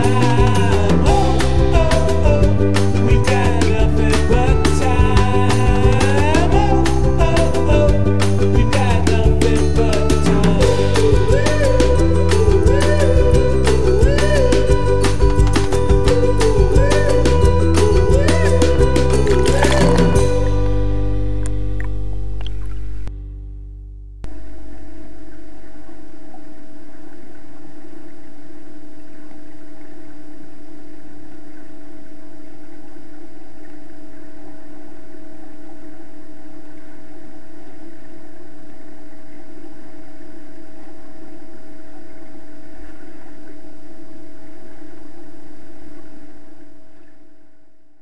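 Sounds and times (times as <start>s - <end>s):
underwater hum and hiss: 24.3s - 47.6s.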